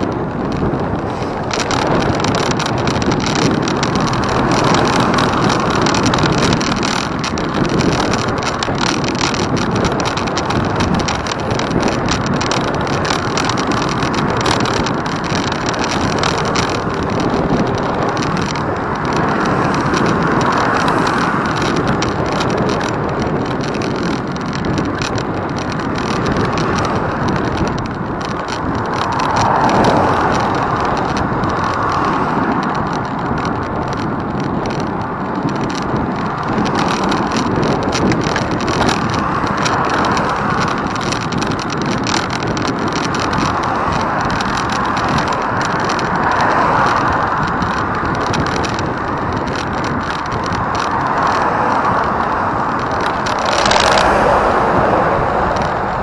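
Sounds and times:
vehicle rushing noise: 0.0 - 56.0.

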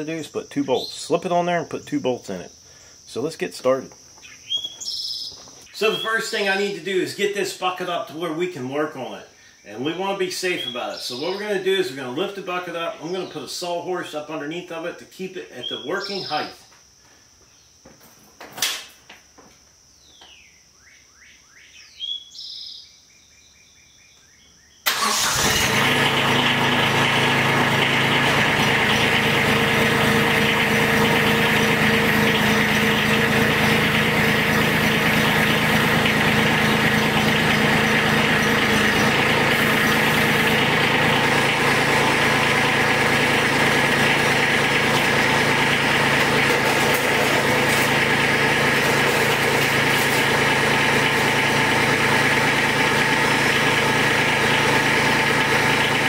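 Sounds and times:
diesel tractor engine running: 24.9 - 56.0.

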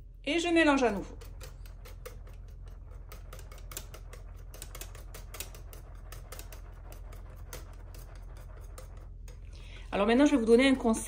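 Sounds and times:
whisk clicking against glass bowl: 0.8 - 9.6.

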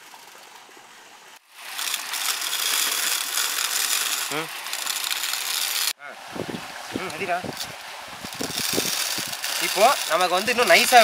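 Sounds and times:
pedal-driven mill grinding rice: 1.6 - 6.0, 7.5 - 11.0.

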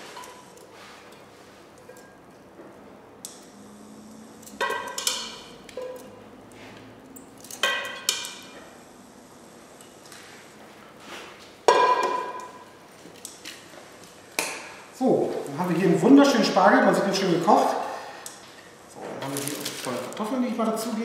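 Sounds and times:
utensils clinking against plates: 4.4 - 6.2.

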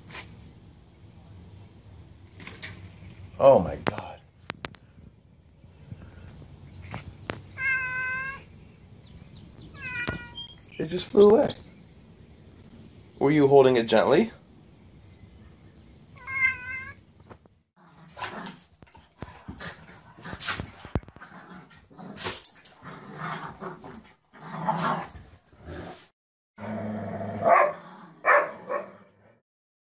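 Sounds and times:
cat meowing: 7.5 - 8.5, 9.7 - 10.5, 16.2 - 17.0
dogs growling and barking: 17.8 - 29.4.

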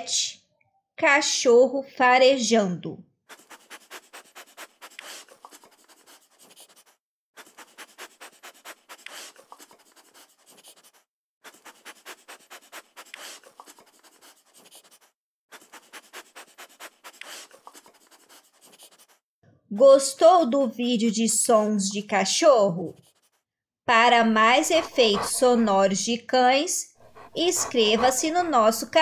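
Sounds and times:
dog sniffing: 3.3 - 19.2, 22.9 - 23.4, 24.2 - 25.9, 27.0 - 29.0.

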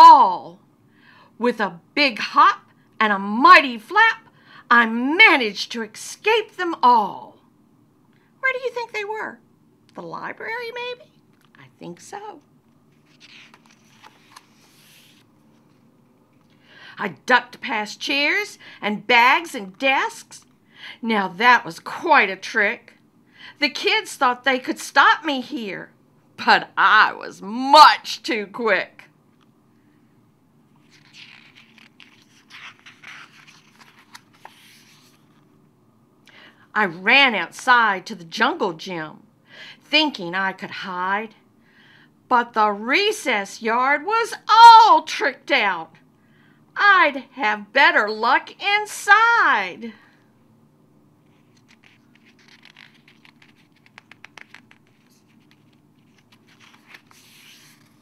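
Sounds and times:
book page rustling and scraping: 12.7 - 15.9, 30.8 - 35.6, 51.2 - 58.0
soft clicks of pages: 12.7 - 16.6, 30.9 - 35.5, 51.3 - 58.0.

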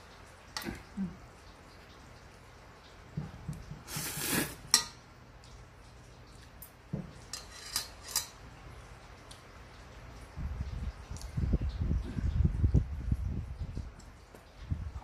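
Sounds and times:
cutlery clicking against dishes: 6.6 - 8.4.

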